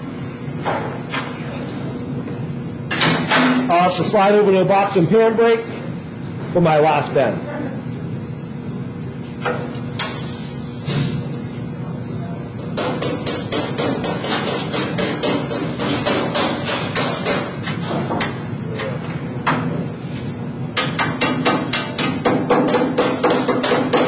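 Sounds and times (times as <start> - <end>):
rubber mallet beating sheet metal: 12.7 - 18.3, 20.8 - 24.0.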